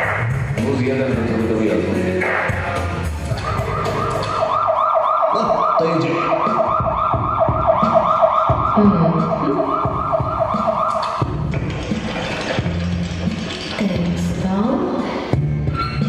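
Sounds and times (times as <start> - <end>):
siren yelping: 3.3 - 11.4.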